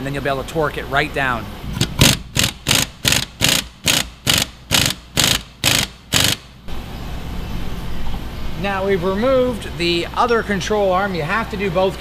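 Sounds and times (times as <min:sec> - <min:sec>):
impact wrench hammering: 0:01.8 - 0:06.5.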